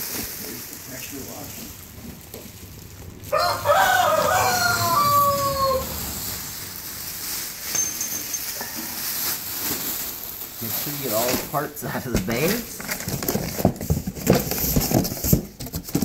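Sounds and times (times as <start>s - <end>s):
rooster crowing: 3.0s - 6.9s.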